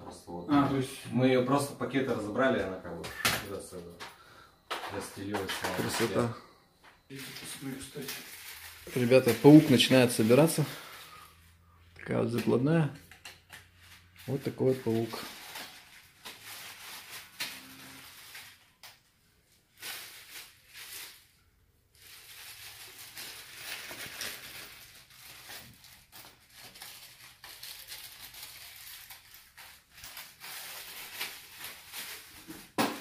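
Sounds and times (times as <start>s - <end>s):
plastic bag crinkling and rustling: 4.8s - 6.4s, 7.0s - 11.4s, 13.6s - 33.0s.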